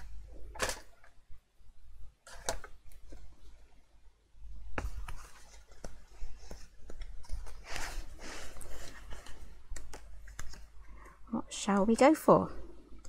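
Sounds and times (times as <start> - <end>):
paper pages rustling: 4.6 - 11.2.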